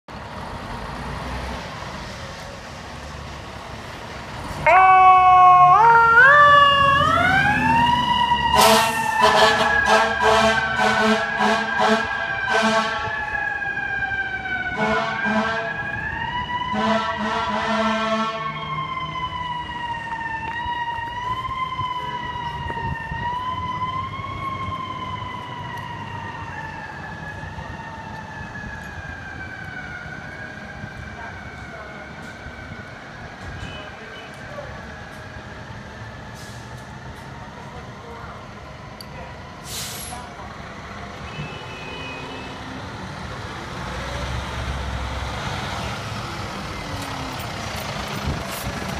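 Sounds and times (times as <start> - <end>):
air horn blasts: 8.5 - 13.0, 14.8 - 15.7, 16.7 - 18.5.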